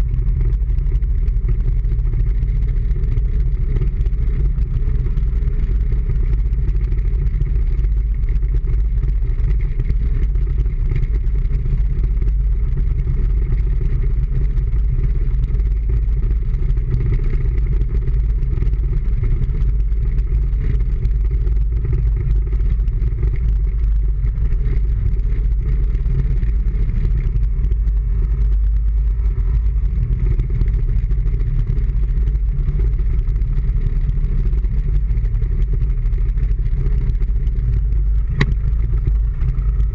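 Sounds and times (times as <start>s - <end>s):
vehicle engine running: 0.0s - 39.9s
road noise: 20.5s - 39.9s.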